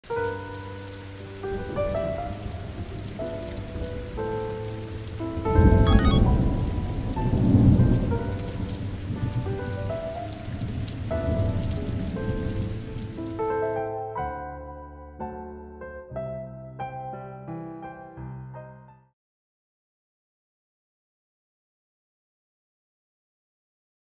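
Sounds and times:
steady rain: 0:00.0 - 0:13.9
blues piano music: 0:00.1 - 0:19.1
thunder rumble: 0:05.4 - 0:13.2.

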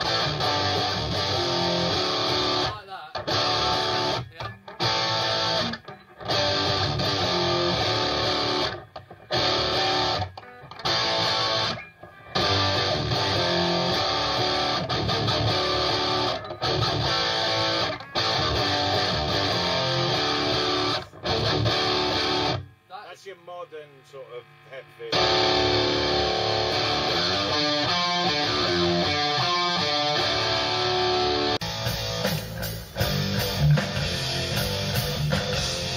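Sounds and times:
electric guitar rock riff: 0:00.0 - 0:23.0, 0:24.2 - 0:35.9.

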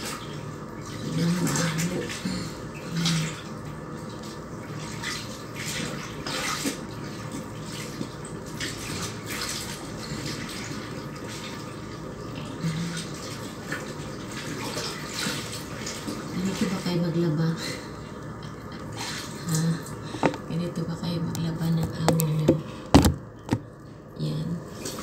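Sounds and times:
clothes sloshing in water: 0:00.0 - 0:17.1, 0:17.7 - 0:20.5.

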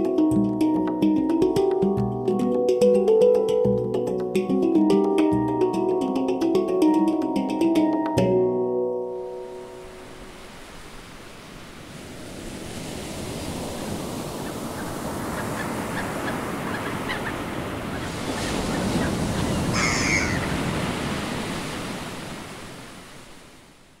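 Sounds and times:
sea waves washing onto shore: 0:09.2 - 0:24.0
short bird call: 0:19.7 - 0:20.5.

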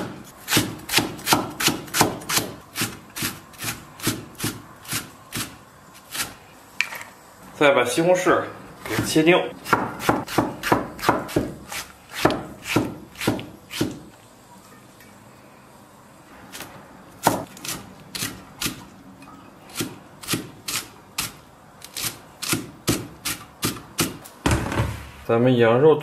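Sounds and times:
cleaver chopping on wooden board: 0:00.0 - 0:02.6, 0:09.6 - 0:11.6, 0:12.2 - 0:14.0.

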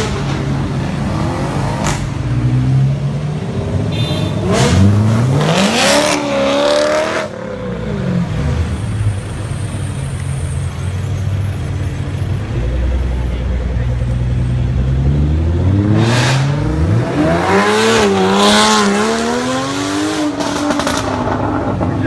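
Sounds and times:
sports car engines running: 0:00.0 - 0:22.0
engine revving hard: 0:04.4 - 0:07.3.

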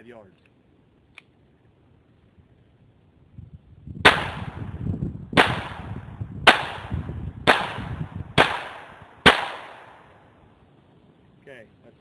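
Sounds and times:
pistol shots with echo: 0:04.0 - 0:04.7, 0:05.4 - 0:10.3.

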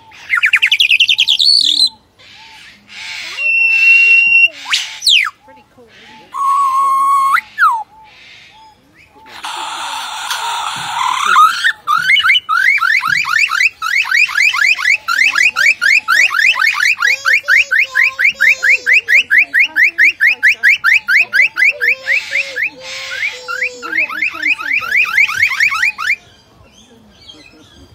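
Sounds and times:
bird mimicking car alarm: 0:10.2 - 0:26.2.

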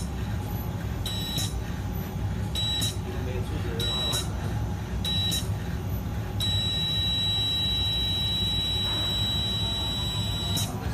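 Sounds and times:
low machine hum: 0:00.0 - 0:10.9
high electronic beeps: 0:01.1 - 0:01.6, 0:02.6 - 0:03.0, 0:03.8 - 0:04.3, 0:05.0 - 0:05.5, 0:06.4 - 0:10.9.

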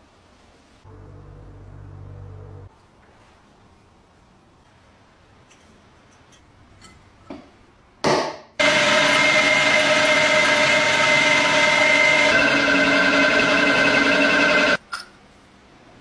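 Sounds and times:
drill press boring metal: 0:08.6 - 0:14.8.

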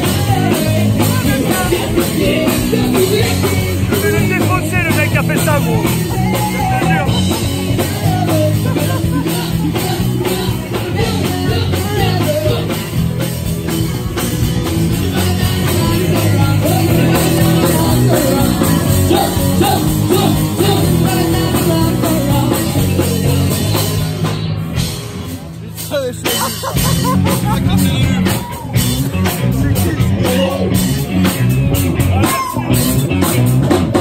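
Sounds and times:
sung vocals: 0:00.0 - 0:13.5, 0:14.7 - 0:24.1
drum kit beat: 0:00.0 - 0:34.0
electric guitars: 0:00.0 - 0:34.0.

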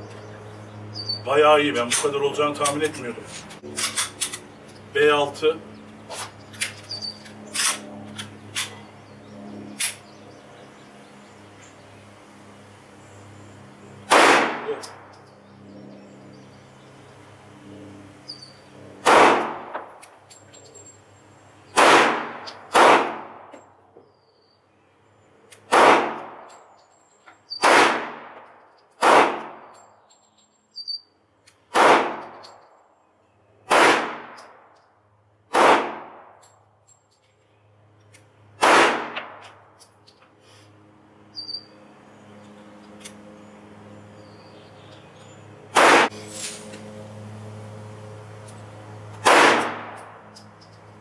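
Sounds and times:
pistol shots: 0:14.1 - 0:15.1, 0:19.0 - 0:19.9, 0:21.8 - 0:23.5, 0:25.7 - 0:26.5, 0:27.6 - 0:28.4, 0:29.0 - 0:29.7, 0:31.7 - 0:32.4, 0:33.7 - 0:34.4, 0:35.5 - 0:36.4, 0:38.6 - 0:39.4, 0:45.7 - 0:46.1, 0:49.2 - 0:50.2.

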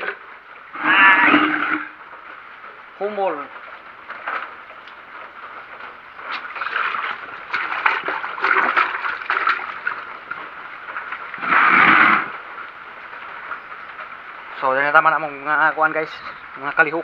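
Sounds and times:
water splashing on concrete: 0:06.3 - 0:12.4.

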